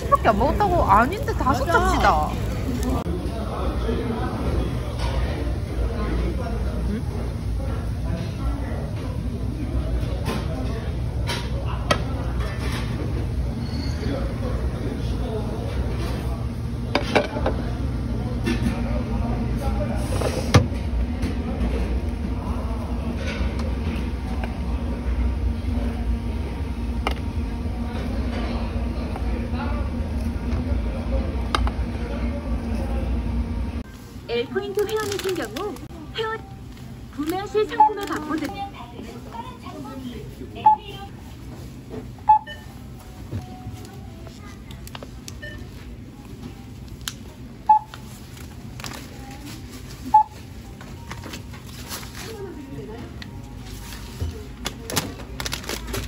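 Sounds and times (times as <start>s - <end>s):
faint chatter: 0.0s - 56.0s
restaurant rumble and hum: 0.0s - 56.0s
barcode scanner beeping: 37.4s - 38.5s, 42.3s - 42.7s, 47.6s - 48.0s, 50.1s - 50.4s.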